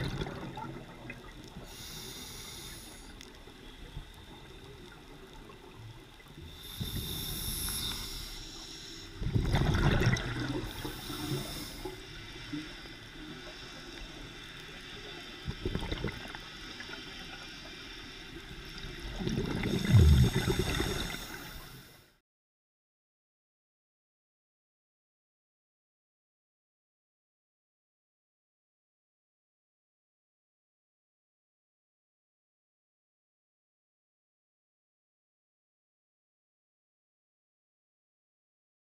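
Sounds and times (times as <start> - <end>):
exhaled bubbles rushing: 0.0 - 1.3, 9.2 - 10.8, 19.0 - 21.4
regulator inhale hiss: 1.5 - 4.8, 6.3 - 9.4, 10.6 - 15.4, 16.4 - 18.8, 19.6 - 22.2.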